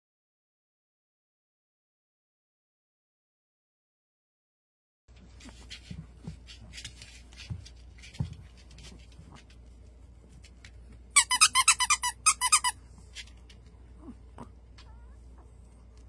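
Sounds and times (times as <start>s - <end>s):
squeaky toy squeaking: 11.2s - 12.8s.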